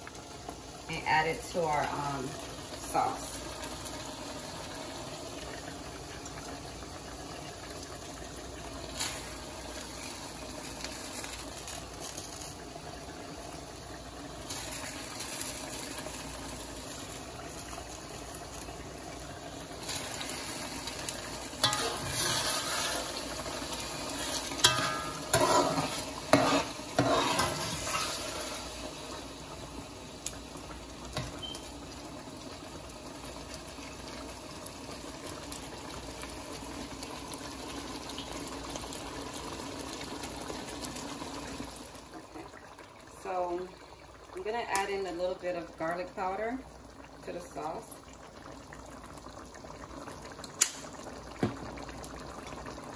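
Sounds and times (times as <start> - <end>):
sauce simmering in a pot: 0.0 - 52.9
metal spoon scraping a pot: 21.6 - 23.1, 24.2 - 28.1.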